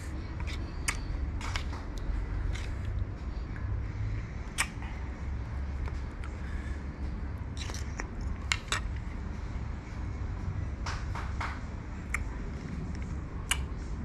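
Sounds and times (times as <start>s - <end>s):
biting and chewing fruit: 0.0s - 3.7s, 4.4s - 5.1s, 7.4s - 9.2s, 12.0s - 13.8s
low steady rumble: 0.0s - 14.0s.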